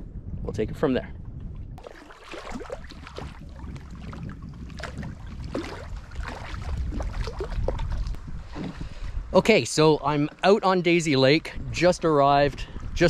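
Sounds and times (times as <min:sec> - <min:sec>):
wind rumble on microphone: 0:00.0 - 0:13.0
water splashing around a canoe: 0:01.8 - 0:08.9.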